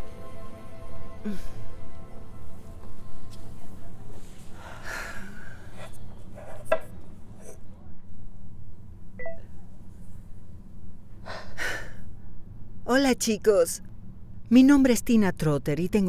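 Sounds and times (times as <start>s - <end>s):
low steady hum: 0.0s - 16.0s
person breathing softly: 4.3s - 6.0s, 11.2s - 12.0s.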